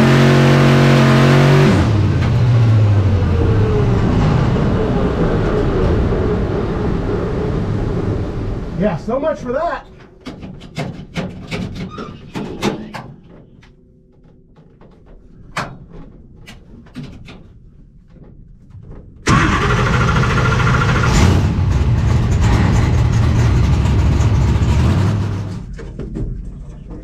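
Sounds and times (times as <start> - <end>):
car engine starting and running: 0.0 - 8.8, 19.2 - 26.0.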